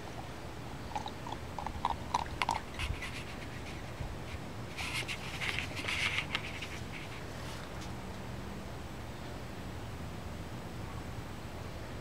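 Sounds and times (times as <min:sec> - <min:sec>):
teeth clicking on ball: 0:00.9 - 0:02.8.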